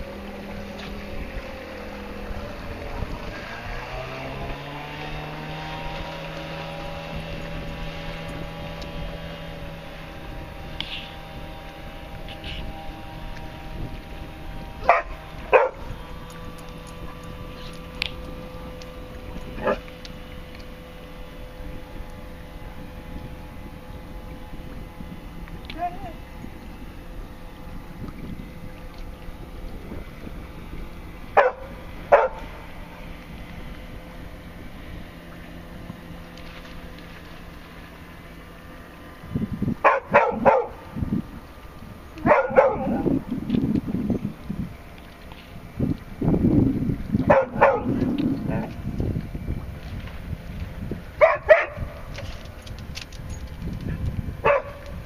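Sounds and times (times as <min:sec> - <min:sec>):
outboard motor drone: 0:00.0 - 0:55.0
dog barking: 0:14.9 - 0:15.8, 0:31.4 - 0:32.4, 0:39.8 - 0:40.8, 0:42.2 - 0:43.0, 0:47.3 - 0:47.9, 0:51.2 - 0:51.8, 0:54.5 - 0:54.8.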